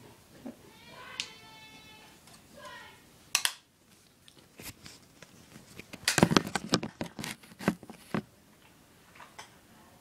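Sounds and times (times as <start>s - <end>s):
clicks taps and rustles handling: 3.4s - 9.5s.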